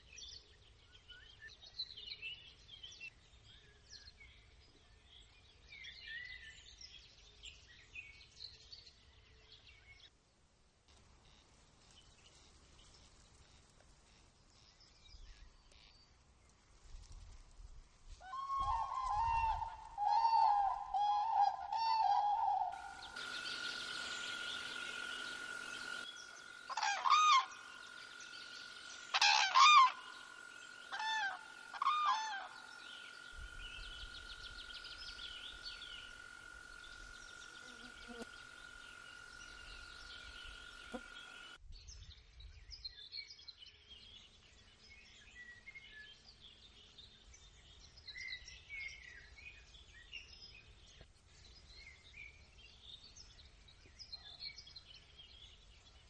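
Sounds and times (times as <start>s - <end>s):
faint songbird chirps: 0.0s - 10.2s, 11.0s - 56.0s
cranes trumpeting: 18.3s - 41.6s
faint high whine: 18.9s - 41.6s.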